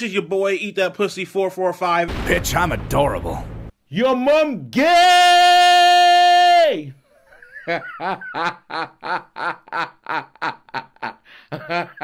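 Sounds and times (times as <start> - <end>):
person chuckling rhythmically: 7.1 - 12.0.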